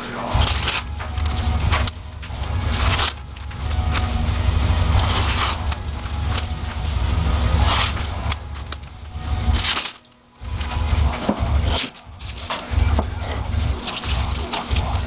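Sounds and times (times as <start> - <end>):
steady low rumble: 0.0 - 15.0
knife slicing paper: 4.9 - 6.5, 7.5 - 8.1.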